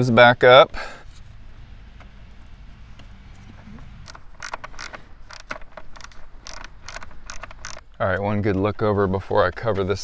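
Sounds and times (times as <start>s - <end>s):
battery cable clicks and scrapes: 3.0s - 8.7s.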